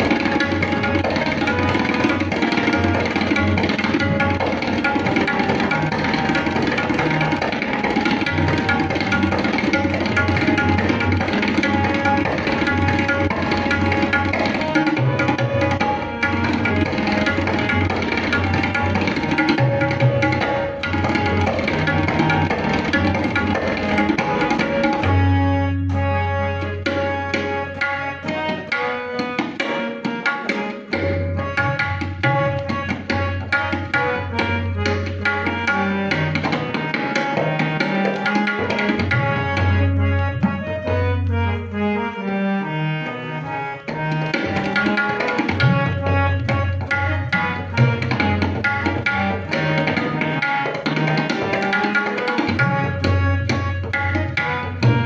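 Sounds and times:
tabla strokes: 0.0s - 41.1s, 43.9s - 55.0s
harmonium melody: 0.0s - 55.0s.

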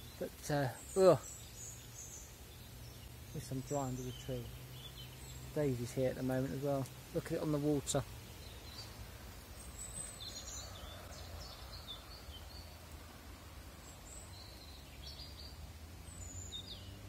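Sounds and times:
light rain on water and leaves: 0.0s - 17.0s
small birds chirping: 0.0s - 17.0s.

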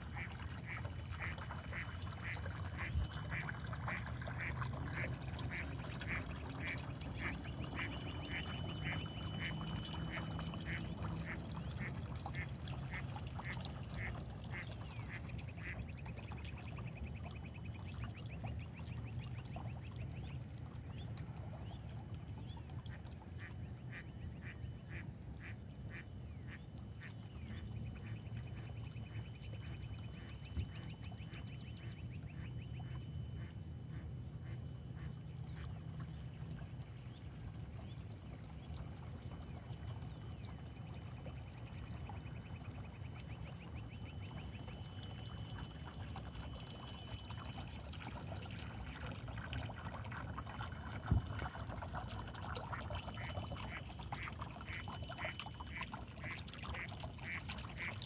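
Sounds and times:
low background rumble: 0.0s - 57.0s
ducks quacking: 0.2s - 15.8s.

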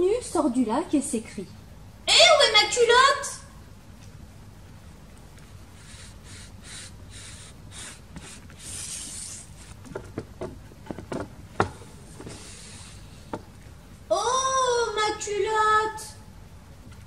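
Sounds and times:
paper card sliding against wood: 8.1s - 10.3s
sharp taps and knocks: 9.8s - 12.4s.

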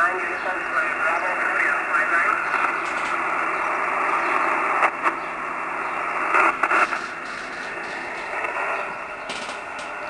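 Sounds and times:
radio band noise hiss: 0.0s - 10.0s
static crackles: 0.0s - 10.0s.

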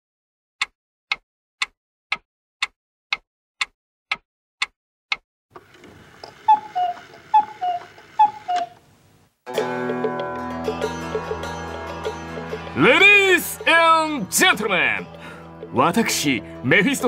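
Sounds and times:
clock ticking: 0.6s - 5.2s.

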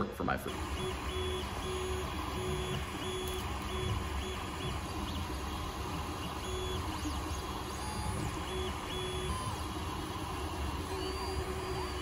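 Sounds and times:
fans humming: 0.0s - 12.0s
stepper motors whining: 0.5s - 12.0s.

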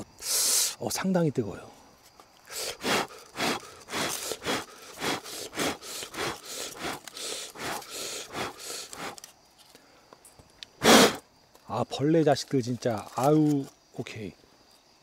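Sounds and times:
knife sawing through mushroom: 2.6s - 9.2s.

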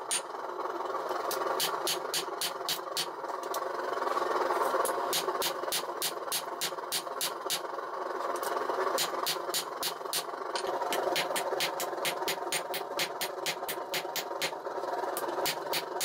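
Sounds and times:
hammer striking steel on anvil: 0.0s - 0.3s, 1.6s - 3.1s, 5.1s - 7.6s, 9.0s - 14.6s, 15.4s - 16.0s
steady background noise: 0.0s - 16.0s.

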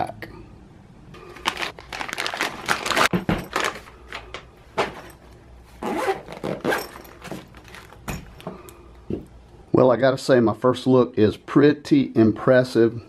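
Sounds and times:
plastic bag tearing and crinkling: 1.2s - 4.4s
handling knocks: 3.1s - 3.9s, 4.7s - 9.3s
zipper pulled open: 5.8s - 7.9s.

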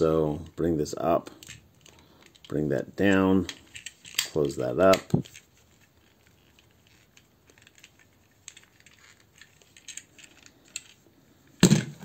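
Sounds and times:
plastic toy parts clicking: 1.3s - 2.6s, 3.4s - 11.0s.

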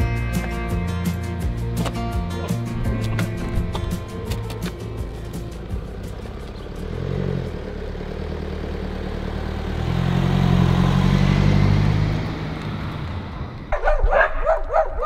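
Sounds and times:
car driving past: 2.6s - 13.8s.

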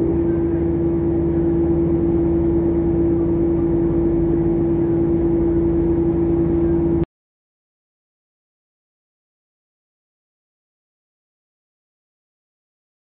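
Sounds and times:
ship machinery droning: 0.0s - 7.0s.

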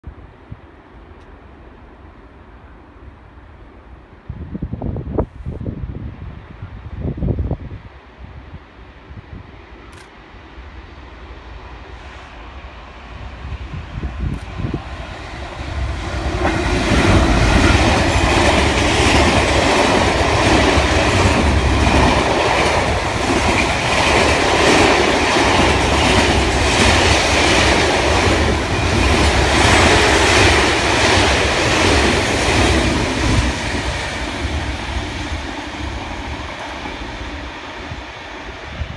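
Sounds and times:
diesel locomotive speeding past: 8.7s - 38.9s
train wheels clacking on track: 14.1s - 38.6s.

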